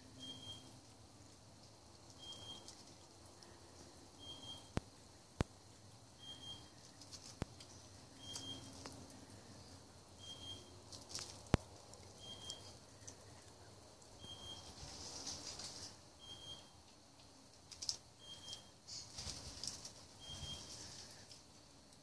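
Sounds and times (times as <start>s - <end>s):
animal chewing: 0.2s - 16.0s.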